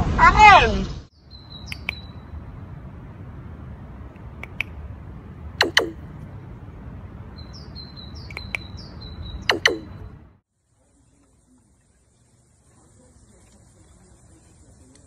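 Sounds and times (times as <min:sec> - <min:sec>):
short high chirps: 0:05.6 - 0:06.0, 0:08.2 - 0:10.2.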